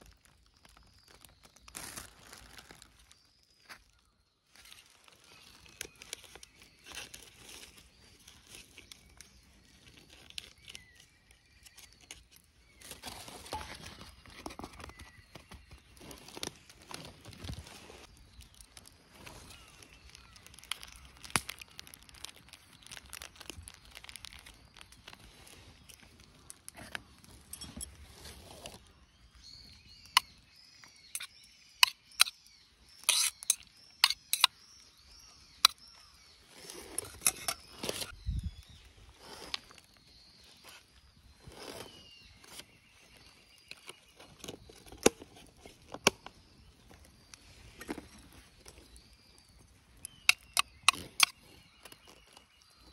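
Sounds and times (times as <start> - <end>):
plastic packaging crinkling: 0.0 - 3.3, 4.5 - 28.8
metal spoon scraping steel cup: 33.0 - 34.5.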